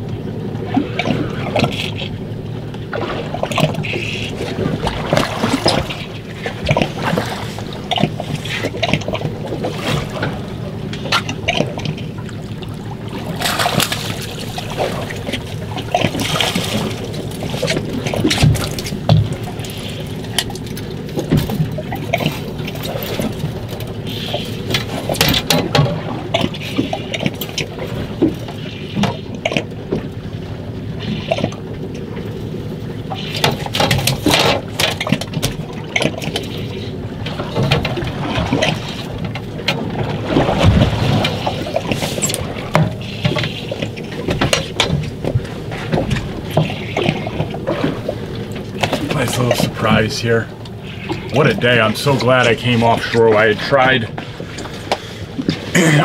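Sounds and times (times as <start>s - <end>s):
low mechanical hum: 0.0s - 56.0s
water splashing against boat hull: 0.0s - 56.0s.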